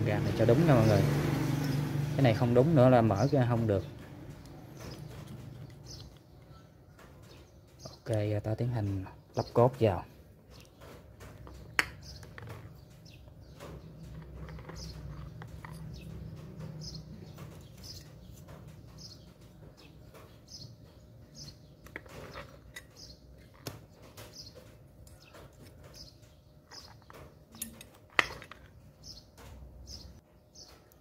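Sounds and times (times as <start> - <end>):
bird chirping: 0.0 - 31.0
metal parts clicking and tapping: 10.5 - 21.0, 21.8 - 29.6.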